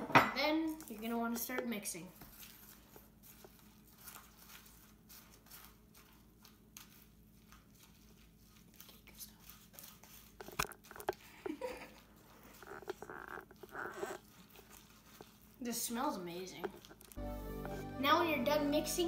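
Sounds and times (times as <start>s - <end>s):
metal spoon stirring food in cup: 10.1s - 11.6s, 12.4s - 15.6s, 16.6s - 17.2s
faint crunching: 10.2s - 15.7s.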